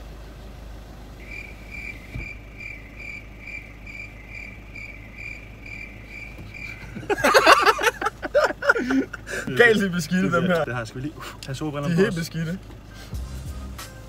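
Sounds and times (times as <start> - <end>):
cricket chirping: 1.2 - 8.8.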